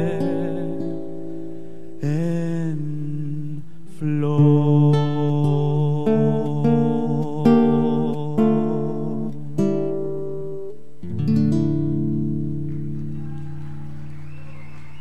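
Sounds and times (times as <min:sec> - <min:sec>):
classical guitar notes and chord: 0:00.0 - 0:02.7, 0:04.3 - 0:13.2.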